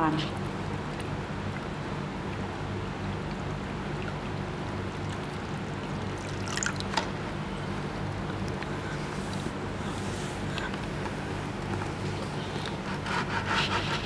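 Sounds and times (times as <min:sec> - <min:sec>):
steady low hum: 0:00.0 - 0:14.0
water splash and dribble: 0:00.6 - 0:07.2
water pouring into bucket: 0:05.0 - 0:07.0.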